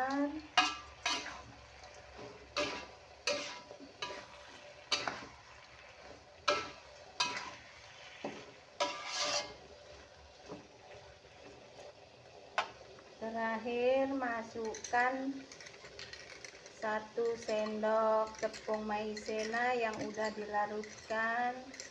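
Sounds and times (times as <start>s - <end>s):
metal spatula scraping a wok: 0.0s - 11.5s, 14.6s - 21.9s.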